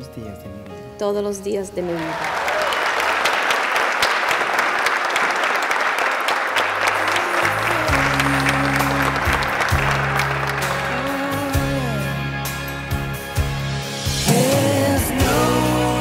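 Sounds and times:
crowd applauding: 1.8 - 12.0
slow music with held bass: 7.4 - 16.0.

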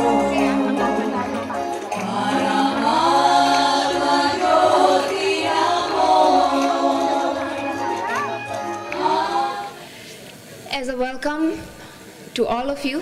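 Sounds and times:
group of voices chanting: 2.0 - 9.8.

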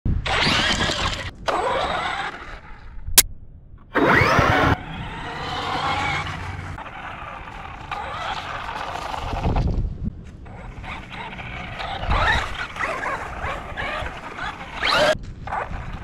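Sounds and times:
rc car electric motor whining: 0.2 - 2.6, 4.0 - 9.6, 10.6 - 15.2.

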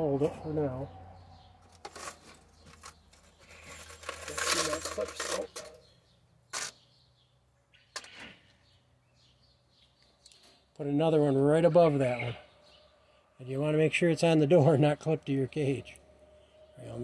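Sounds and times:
scraping rattle: 1.6 - 5.8.

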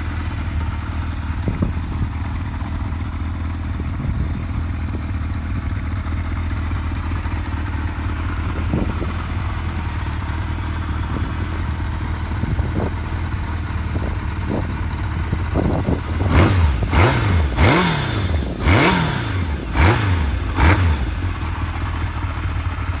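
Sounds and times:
motorcycle engine idling: 0.0 - 23.0
engine revving in throttle blips: 15.6 - 21.3.

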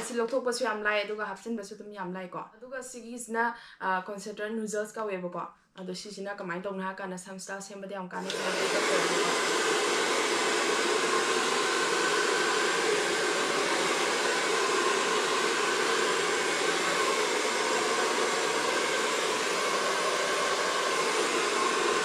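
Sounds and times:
hair dryer running: 0.0 - 0.3, 8.2 - 22.0.

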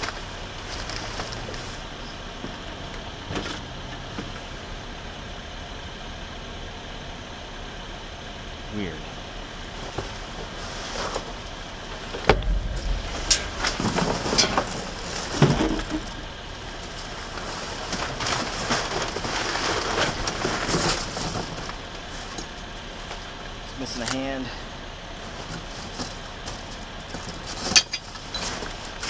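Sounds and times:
packaging rustling and crinkling: 16.8 - 21.7.

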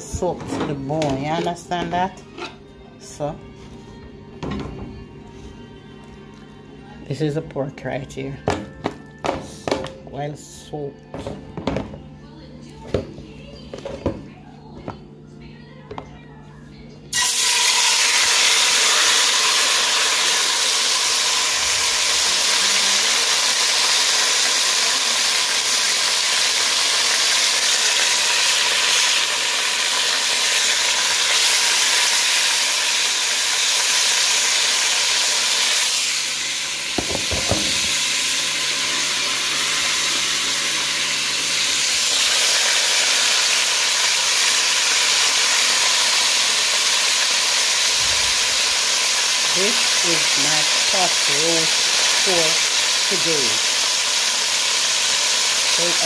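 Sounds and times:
meat sizzling in a pot: 17.1 - 56.0.

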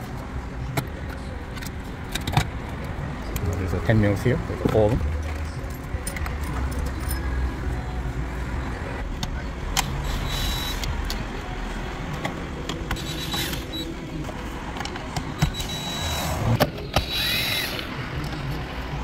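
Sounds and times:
cordless drill running: 10.0 - 10.8, 13.0 - 13.8, 15.6 - 17.9.

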